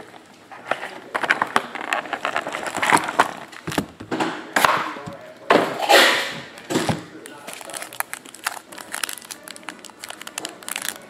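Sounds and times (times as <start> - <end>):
plastic wrap crinkling: 1.2 - 4.0, 6.5 - 11.0.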